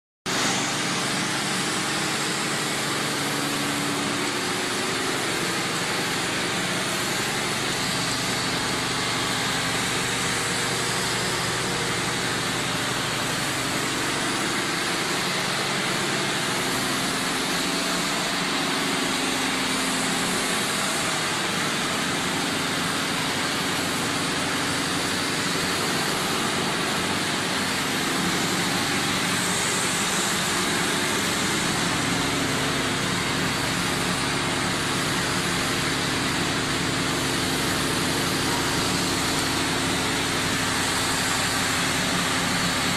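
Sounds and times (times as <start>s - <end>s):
machinery running: 0.3s - 42.9s.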